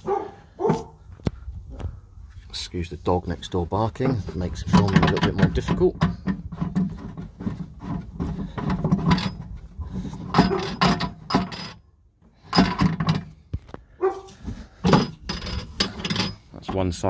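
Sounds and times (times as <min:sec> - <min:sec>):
dog barking sharply: 0:00.0 - 0:01.0, 0:14.0 - 0:14.3.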